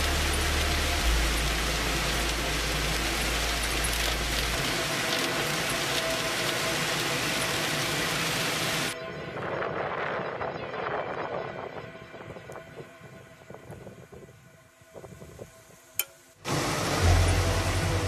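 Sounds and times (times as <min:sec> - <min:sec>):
rain hiss: 0:00.0 - 0:09.0, 0:14.8 - 0:18.0
low hum: 0:00.0 - 0:18.0.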